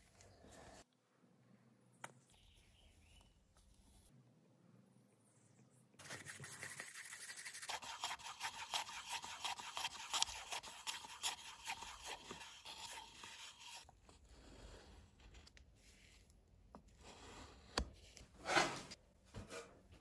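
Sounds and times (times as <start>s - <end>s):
stir stick scraping paper cup: 6.0s - 16.2s.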